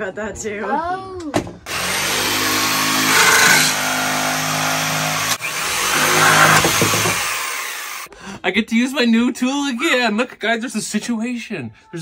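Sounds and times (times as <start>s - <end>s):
jigsaw cutting wood: 1.7s - 8.1s.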